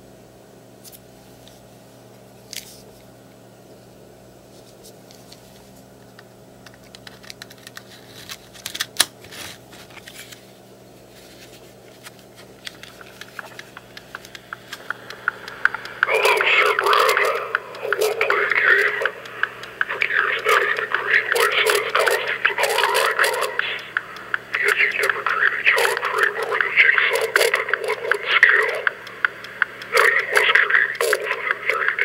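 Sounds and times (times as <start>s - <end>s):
plastic clicks and rattles: 6.6s - 9.1s.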